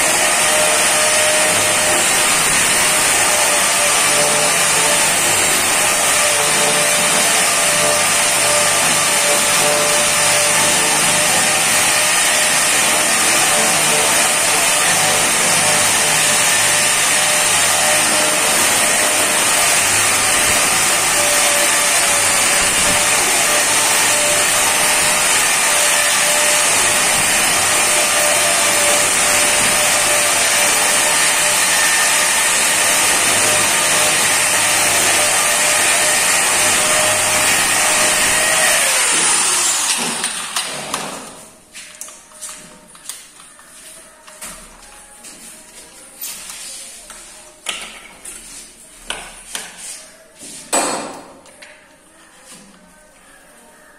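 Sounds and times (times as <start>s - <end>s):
angle grinder on granite: 0.0s - 41.0s.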